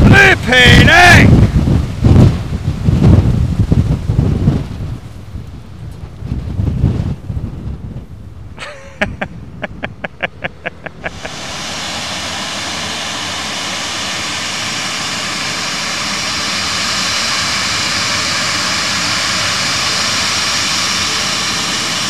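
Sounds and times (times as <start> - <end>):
jet engines spooling up: 8.6 - 22.0.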